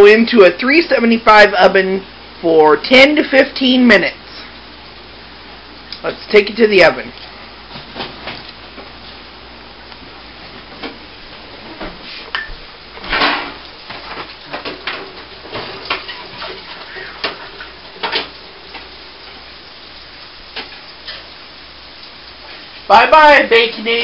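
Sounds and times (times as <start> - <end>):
oven door opening: 13.0 - 18.9.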